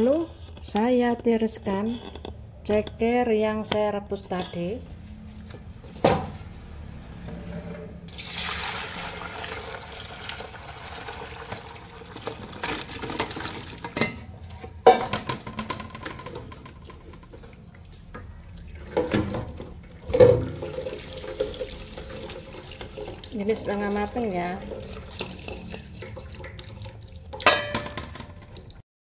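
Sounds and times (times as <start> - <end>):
water draining: 8.1 - 14.0, 18.6 - 28.8
water splashing into colander: 8.1 - 14.0, 18.7 - 28.8
metal pot and colander clanking: 27.3 - 28.6.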